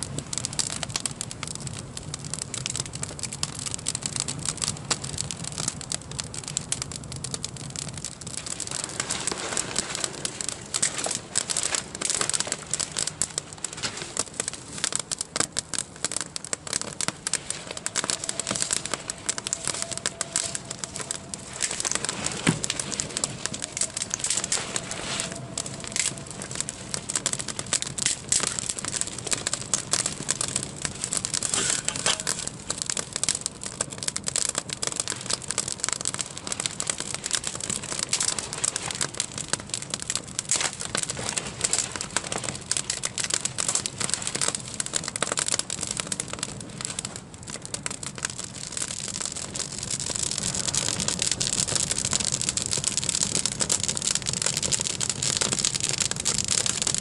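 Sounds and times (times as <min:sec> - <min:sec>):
campfire crackling: 0:00.0 - 0:57.0
snaps and pops: 0:16.5 - 0:33.1.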